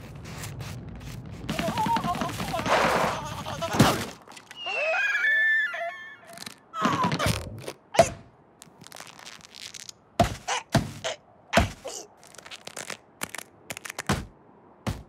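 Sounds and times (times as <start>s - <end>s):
cartoon thunks and knocks: 10.2s - 11.9s, 14.0s - 15.0s.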